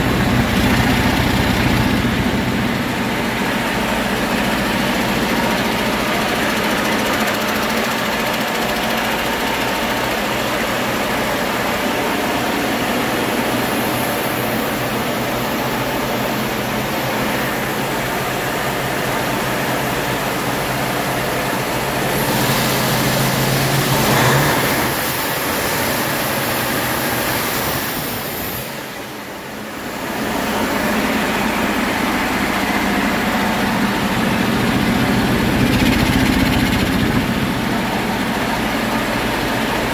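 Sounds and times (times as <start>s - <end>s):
diesel truck engine running: 0.0s - 27.4s, 28.7s - 39.9s.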